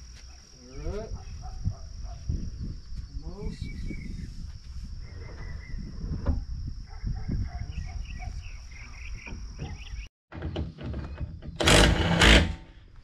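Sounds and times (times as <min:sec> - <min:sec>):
bird chirps: 0:03.0 - 0:04.4, 0:07.4 - 0:10.1.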